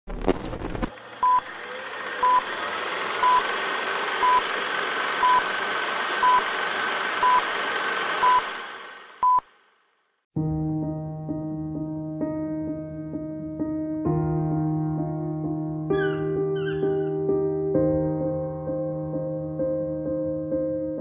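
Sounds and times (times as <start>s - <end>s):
short high beeps: 3.2s - 3.4s, 4.2s - 4.4s, 5.2s - 5.4s.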